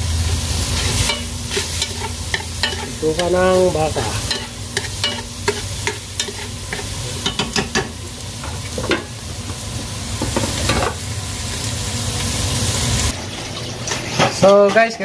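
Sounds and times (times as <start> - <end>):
meat fat sizzling in a pan: 0.0 - 15.0
utensil scraping a pan: 0.6 - 7.4.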